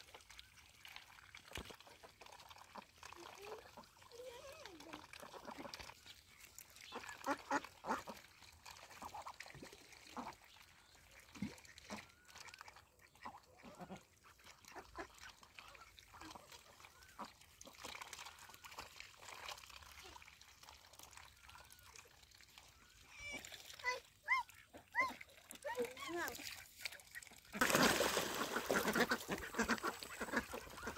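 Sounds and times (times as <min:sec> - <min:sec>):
ducks quacking: 0:06.8 - 0:08.3, 0:11.2 - 0:17.3, 0:24.3 - 0:30.9.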